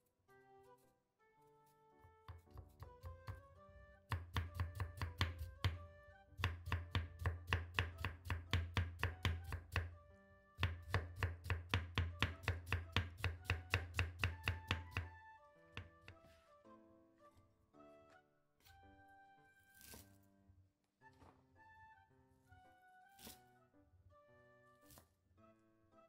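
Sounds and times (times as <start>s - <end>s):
soft background music: 0.0s - 26.0s
knife chopping on wooden board: 2.2s - 3.4s, 4.1s - 5.8s, 6.4s - 9.9s, 10.6s - 15.2s, 15.8s - 16.4s.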